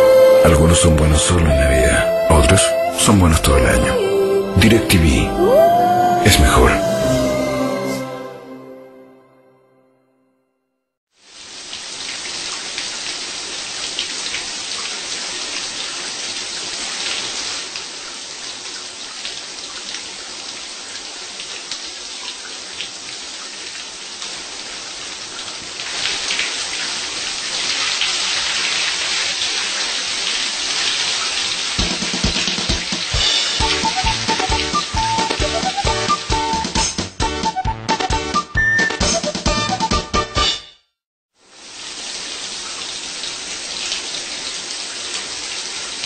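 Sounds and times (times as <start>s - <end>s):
water splashing on tiles: 25.2s - 35.6s
shower spray running: 25.9s - 36.3s.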